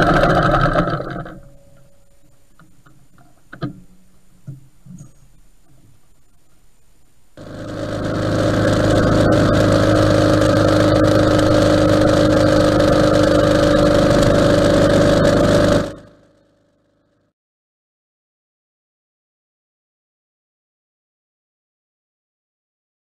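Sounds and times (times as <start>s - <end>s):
motorcycle engine running: 0.0s - 1.6s, 7.4s - 16.7s.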